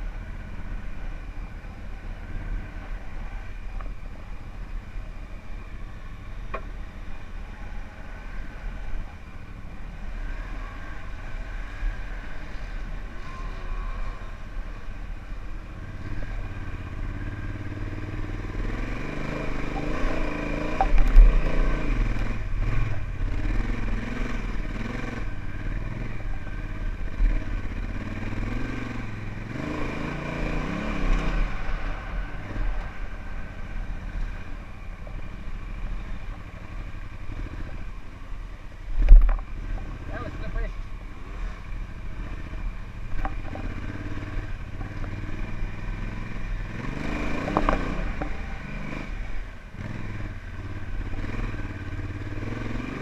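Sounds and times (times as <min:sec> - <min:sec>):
motorcycle engine revving: 0:09.9 - 0:38.4, 0:39.0 - 0:53.0.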